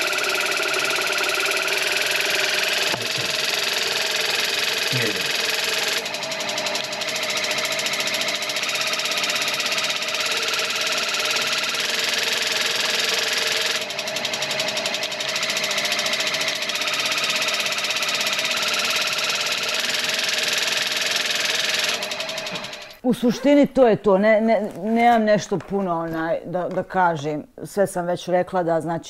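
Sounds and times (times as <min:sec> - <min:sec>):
water flosser buzzing: 0:00.0 - 0:23.0.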